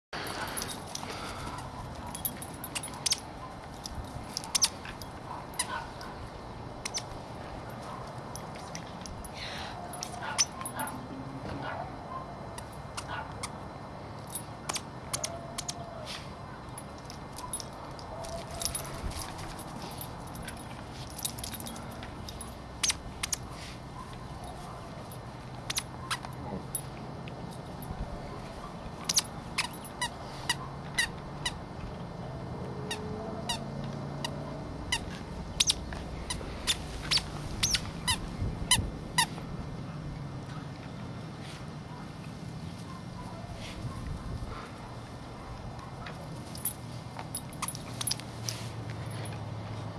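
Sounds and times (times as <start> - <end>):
squeaky toy squeaks: 29.0 - 31.6, 34.9 - 39.3.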